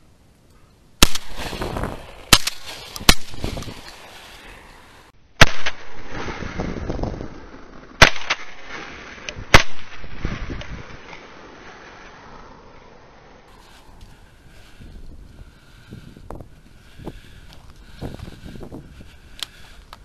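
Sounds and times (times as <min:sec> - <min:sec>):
shotgun shots echoing: 0:01.0 - 0:03.8, 0:05.4 - 0:06.4, 0:08.0 - 0:10.2.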